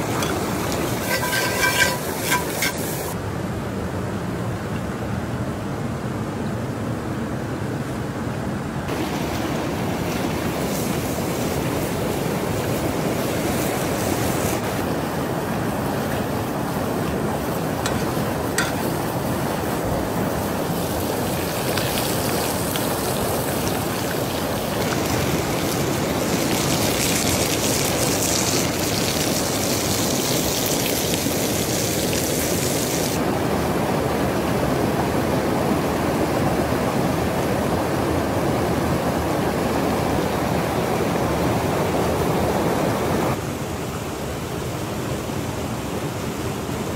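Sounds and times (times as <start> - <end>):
steak sizzling in a skillet: 0.0 - 3.2
river rushing: 0.0 - 3.3, 8.8 - 46.9.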